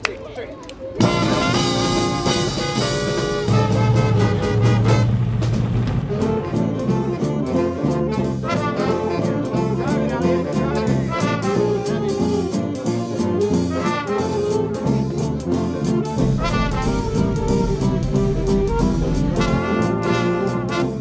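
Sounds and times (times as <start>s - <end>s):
drums: 1.0s - 21.0s
jazz band playing: 1.0s - 21.0s
walking bass line: 1.0s - 21.0s.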